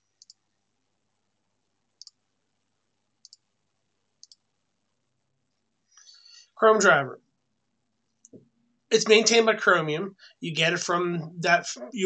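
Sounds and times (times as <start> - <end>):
computer mouse clicks: 0.1 - 0.4, 2.0 - 2.2, 3.2 - 3.5, 4.2 - 4.5.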